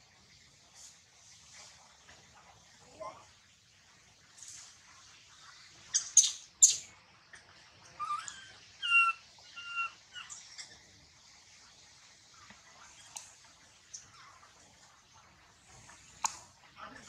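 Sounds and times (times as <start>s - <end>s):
baby monkey crying: 8.0s - 10.4s.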